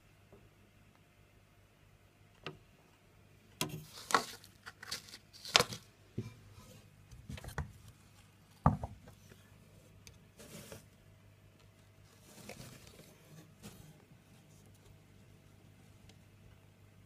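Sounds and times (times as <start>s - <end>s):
rustling and scraping on substrate: 3.8s - 5.8s, 10.4s - 10.9s, 12.0s - 15.0s.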